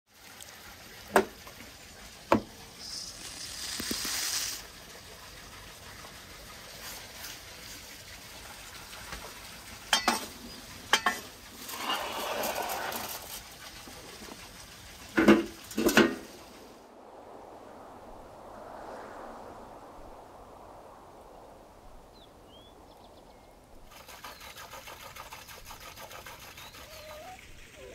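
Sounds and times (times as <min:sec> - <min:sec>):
hissing noise: 0:02.3 - 0:04.8, 0:11.0 - 0:24.2.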